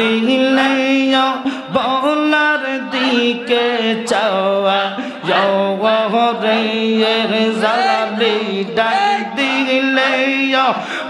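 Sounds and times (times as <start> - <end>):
lead singer's winding melody: 0.0 - 10.9
male voices chanting: 0.0 - 11.0.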